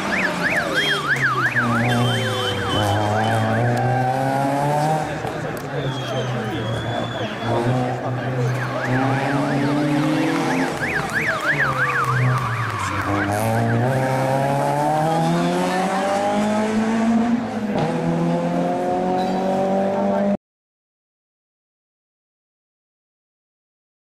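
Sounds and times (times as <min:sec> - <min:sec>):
rising and falling siren: 0:00.0 - 0:04.6, 0:08.4 - 0:16.6
car engine revving: 0:00.0 - 0:05.7, 0:07.4 - 0:20.4.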